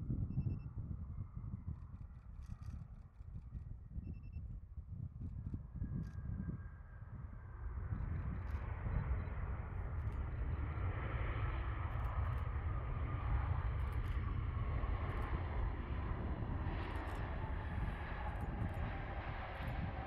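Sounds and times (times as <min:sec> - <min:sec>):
airliner passing while landing: 0:06.6 - 0:20.0.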